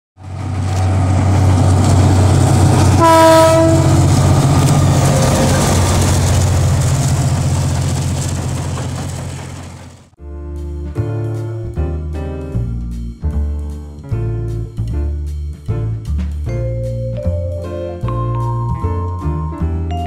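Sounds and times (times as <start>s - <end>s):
diesel locomotive engine droning: 0.2s - 10.2s
train horn blast: 2.3s - 6.1s.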